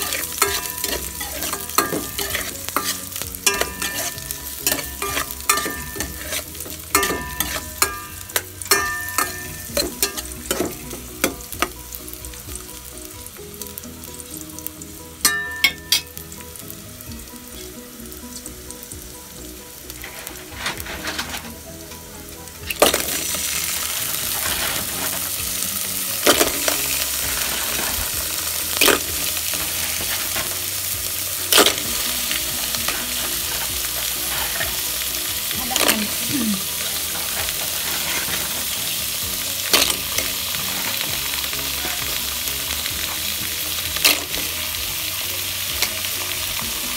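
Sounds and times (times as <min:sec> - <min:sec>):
spatula scraping metal pot: 0:00.0 - 0:10.8, 0:20.0 - 0:21.6, 0:23.2 - 0:25.4, 0:32.6 - 0:35.0, 0:35.7 - 0:38.8
food sizzling in oil: 0:00.0 - 0:46.9.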